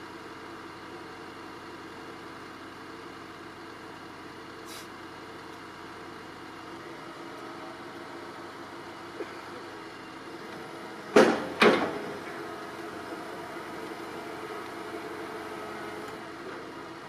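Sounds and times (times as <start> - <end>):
diesel engine idling: 0.0 - 17.0
short hiss: 4.6 - 5.0.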